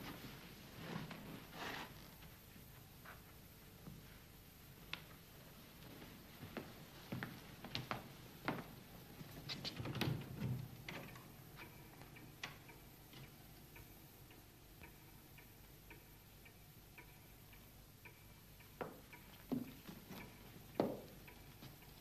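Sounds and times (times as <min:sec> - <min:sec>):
clock ticking faintly: 0:05.8 - 0:22.0.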